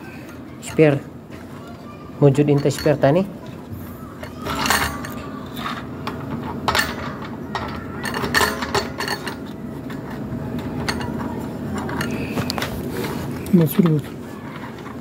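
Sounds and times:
spanner clinking on bolts: 2.3 - 3.3, 4.2 - 12.3.

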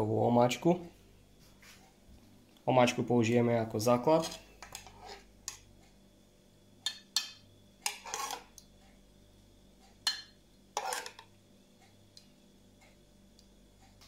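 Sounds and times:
metal spoon clinking on plate: 10.0 - 11.2.

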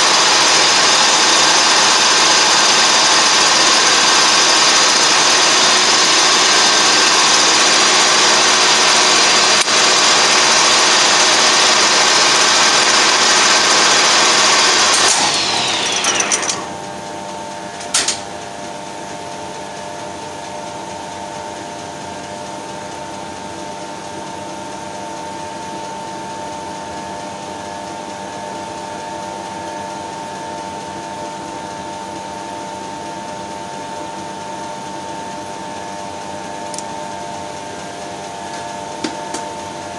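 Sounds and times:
lathe running with a whine: 0.0 - 39.9
machine clunk: 17.8 - 18.3.

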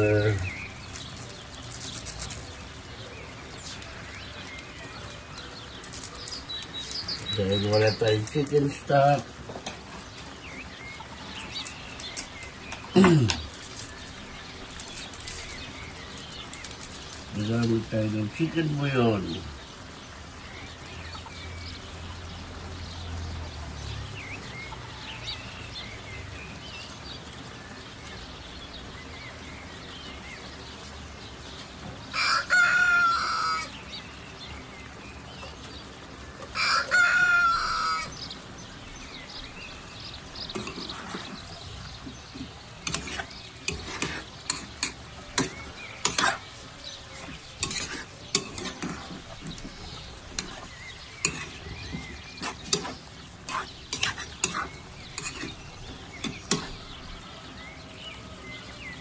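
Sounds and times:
stirring clicks and knocks in pot: 0.0 - 18.5, 39.9 - 57.0
low hiss of pot cooking: 0.0 - 59.0
rooster crowing: 32.1 - 33.8, 36.5 - 38.2.

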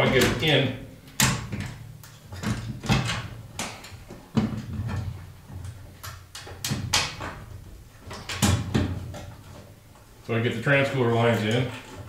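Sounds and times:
metallic knocks and clatters: 1.2 - 9.7.

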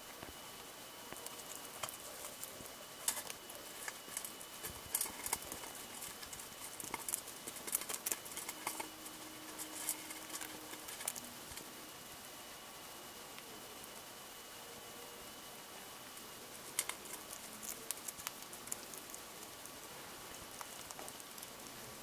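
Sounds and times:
hamster crunching insect: 1.0 - 11.7, 16.0 - 22.0.

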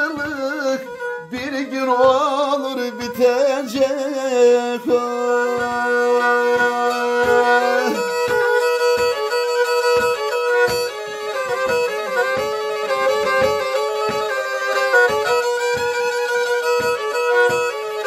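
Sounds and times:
person singing: 0.0 - 8.7
steady beat: 0.0 - 18.0
violin playing: 0.0 - 18.0.

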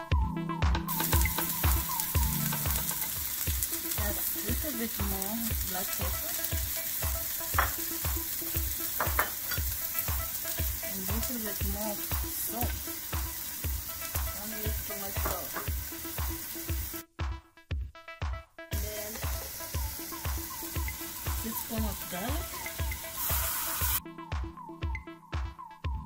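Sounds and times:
background music with a beat: 0.0 - 26.0
meat sizzling in oil: 0.9 - 17.0, 18.8 - 24.0.

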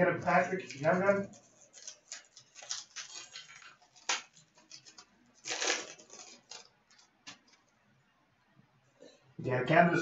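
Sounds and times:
cards rustling against cards: 0.3 - 7.7.

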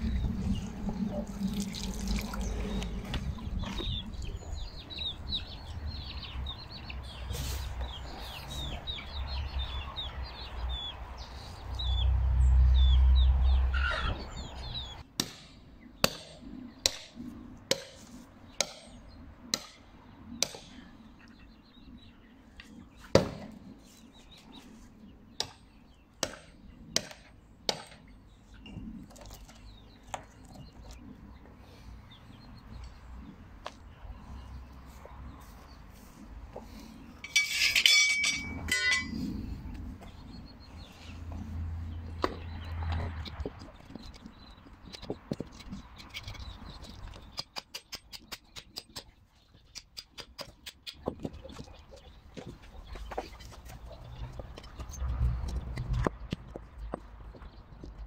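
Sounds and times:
low rumble: 0.0 - 5.4
birds chirping: 0.0 - 58.0.

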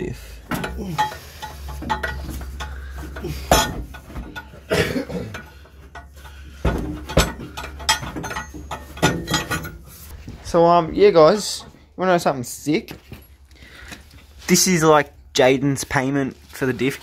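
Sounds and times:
metal exhaust pipe clanking: 0.2 - 10.0.

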